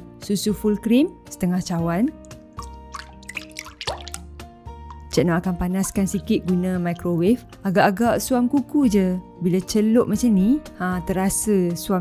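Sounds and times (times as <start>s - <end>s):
background music: 0.0s - 12.0s
milk pouring into jug: 2.3s - 4.3s.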